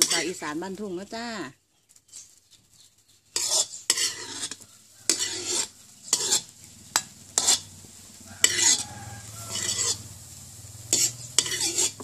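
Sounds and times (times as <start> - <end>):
metal spatula scraping wok: 0.0 - 0.8, 3.2 - 12.0
wok sizzling faintly: 0.0 - 12.0.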